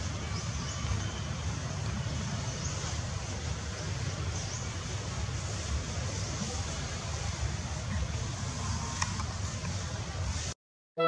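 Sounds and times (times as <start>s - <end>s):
outdoor rumble and hiss: 0.0s - 10.6s.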